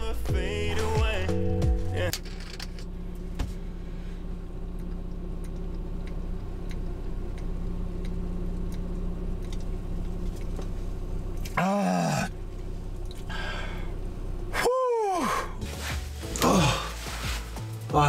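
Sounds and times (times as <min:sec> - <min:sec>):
steady low hum: 0:00.0 - 0:18.0
faint ticks: 0:04.7 - 0:10.7
man groaning: 0:11.6 - 0:12.3, 0:14.6 - 0:15.6, 0:16.3 - 0:17.0.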